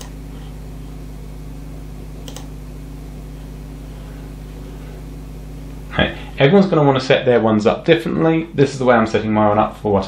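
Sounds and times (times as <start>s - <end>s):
steady low hum: 0.0s - 10.0s
computer mouse click: 2.2s - 2.5s.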